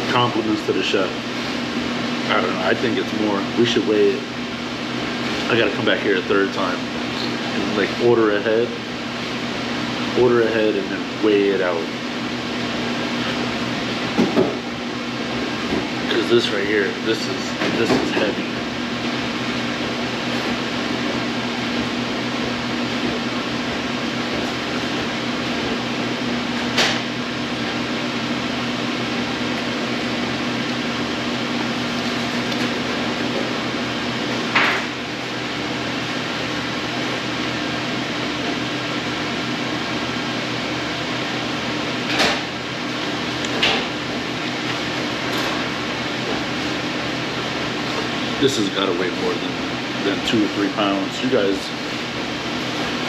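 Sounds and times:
ventilation hum: 0.0 - 53.0.

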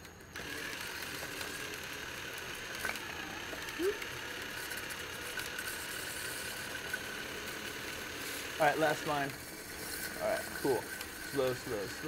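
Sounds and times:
cordless drill motor running: 0.0 - 12.0.

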